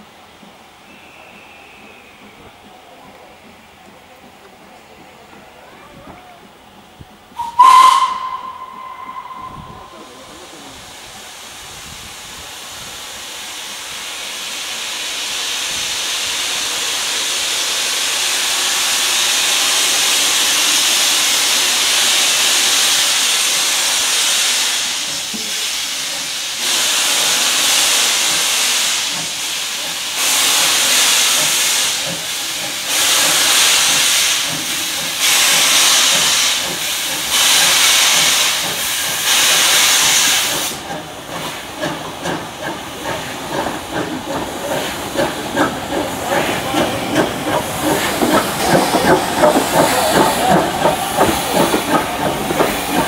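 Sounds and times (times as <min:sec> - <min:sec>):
steam locomotive whistle: 0:00.9 - 0:02.4, 0:07.4 - 0:10.7
steam hissing: 0:06.8 - 0:53.0.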